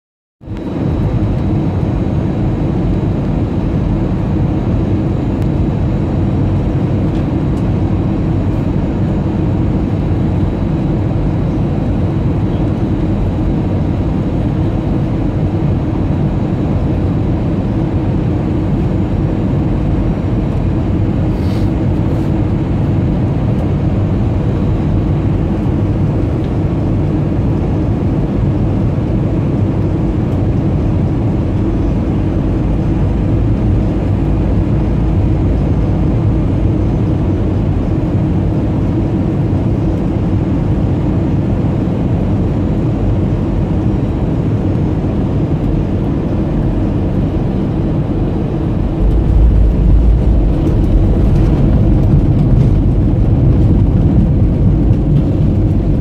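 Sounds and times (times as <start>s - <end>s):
airliner engine noise: 0.4s - 56.0s
rushing airflow: 21.2s - 22.5s, 46.3s - 56.0s.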